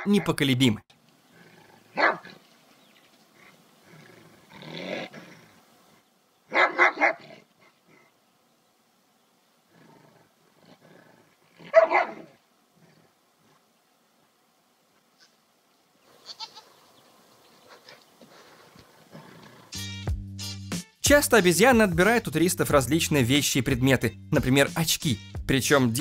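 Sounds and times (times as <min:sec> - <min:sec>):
large dog barking and growling: 0:00.0 - 0:00.3, 0:01.3 - 0:02.4, 0:03.4 - 0:05.6, 0:06.5 - 0:08.1, 0:09.7 - 0:13.5.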